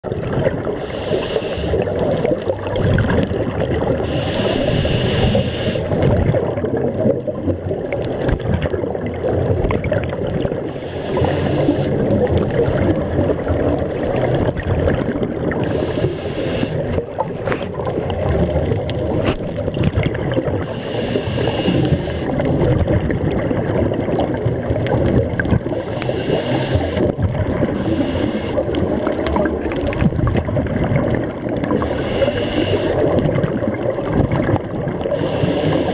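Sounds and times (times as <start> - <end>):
bubbling hiss of exhaling diver: 0.6 - 6.6, 10.5 - 13.1, 15.4 - 18.6, 20.3 - 22.8, 25.4 - 30.0, 31.6 - 33.6, 35.0 - 35.9
low underwater rumble: 1.7 - 32.1.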